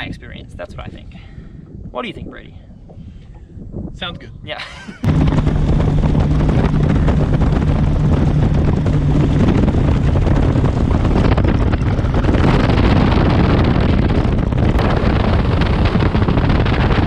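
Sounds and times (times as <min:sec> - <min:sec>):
wind buffeting microphone: 0:00.0 - 0:17.0
outboard engine drone: 0:04.6 - 0:17.0
water rushing past hull: 0:05.0 - 0:17.0.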